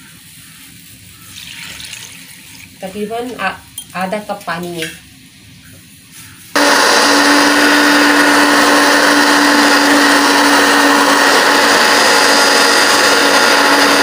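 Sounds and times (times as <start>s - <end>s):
electric blender grinding: 6.6s - 14.0s.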